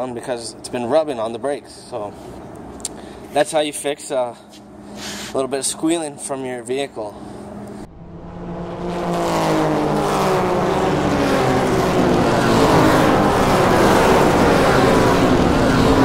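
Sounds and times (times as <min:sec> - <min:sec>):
loud car engine running: 0:07.2 - 0:16.0.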